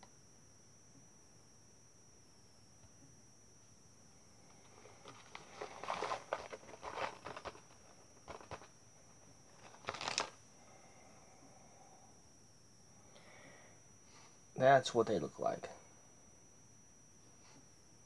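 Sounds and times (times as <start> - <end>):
snack packet crinkling: 4.6 - 10.4.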